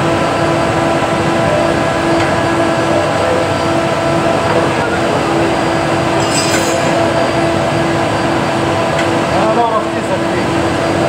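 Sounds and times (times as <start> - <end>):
workshop machinery drone: 0.0 - 11.0
metallic tool clink: 6.2 - 7.2.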